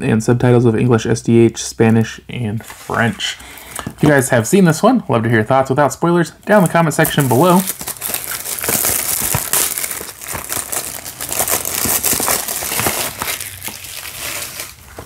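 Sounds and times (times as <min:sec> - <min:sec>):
plastic wrap crinkling and tearing: 0:06.5 - 0:15.0.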